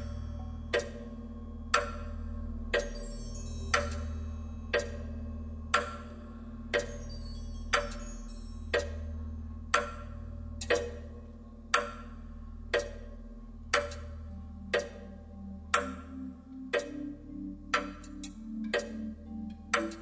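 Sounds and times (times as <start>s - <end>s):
low sustained drone: 0.0s - 11.7s, 12.3s - 20.0s
low pulsing notes: 0.0s - 20.0s
sharp clock-like click: 0.7s - 1.0s, 1.7s - 2.1s, 2.7s - 3.0s, 3.7s - 4.0s, 4.8s - 5.0s, 6.8s - 7.0s, 7.7s - 8.0s, 8.7s - 9.0s, 9.8s - 11.1s, 11.7s - 12.2s, 12.8s - 13.1s, 13.7s - 14.1s, 19.7s - 20.0s.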